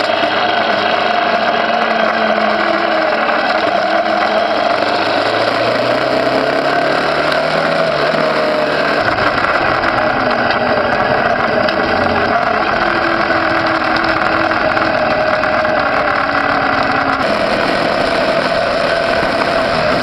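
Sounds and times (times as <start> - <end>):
road and wind noise: 0.0 - 20.0
small motorcycle engine running: 0.0 - 20.0
low rumble: 9.0 - 19.7.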